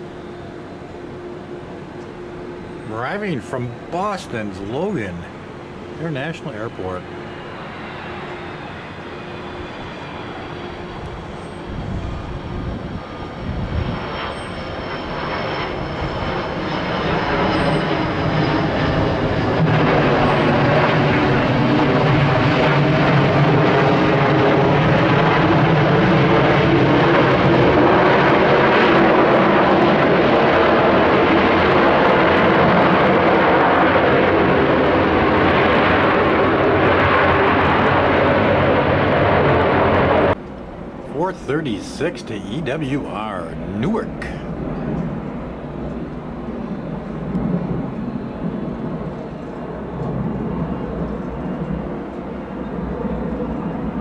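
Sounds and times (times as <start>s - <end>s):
faint high whine: 0.0s - 22.0s, 39.8s - 54.0s
jet engines roaring: 0.0s - 54.0s.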